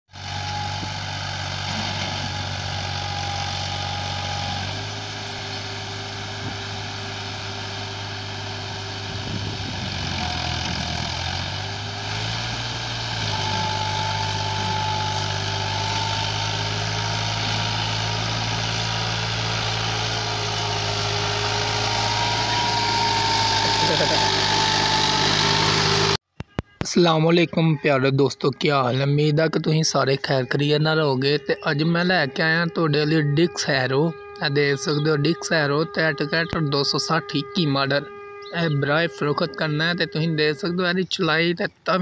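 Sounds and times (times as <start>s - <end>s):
tractor diesel engine running: 0.1s - 26.2s, 28.2s - 42.0s
thin whine: 13.1s - 26.2s.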